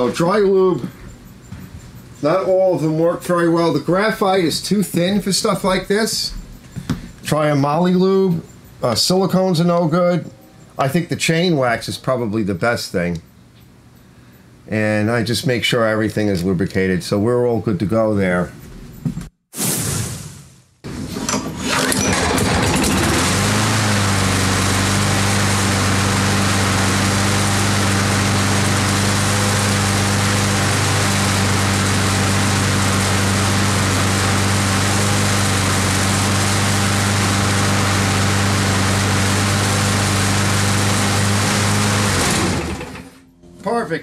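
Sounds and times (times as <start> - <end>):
lawn mower engine running: 0.0 - 1.5, 20.9 - 43.3.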